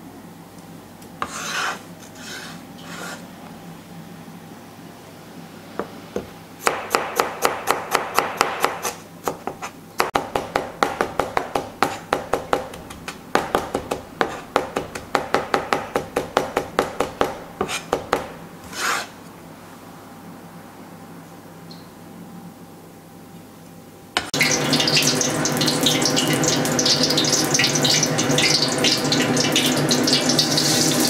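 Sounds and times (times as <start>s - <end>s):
cleaver chopping on plastic board: 6.7s - 19.0s.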